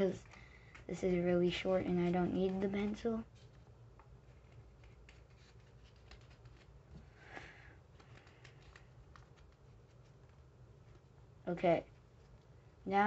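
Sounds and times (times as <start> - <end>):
paper rustling: 0.1 - 7.1, 7.8 - 11.1.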